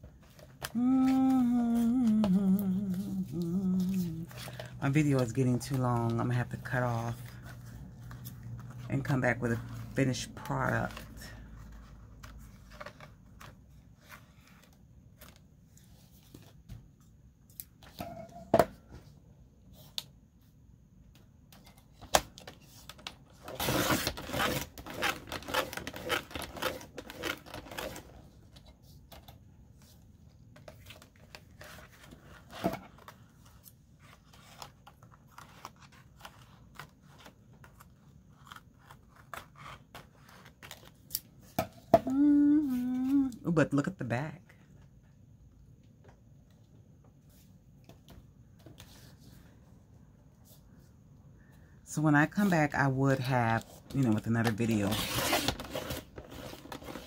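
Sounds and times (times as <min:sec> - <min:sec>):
paper cutting and rustling: 0:30.6 - 0:41.3.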